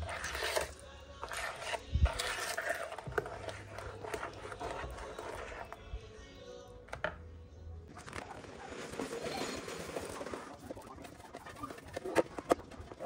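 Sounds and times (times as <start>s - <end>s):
metal spoon scraping batter bowl: 0.0s - 5.9s.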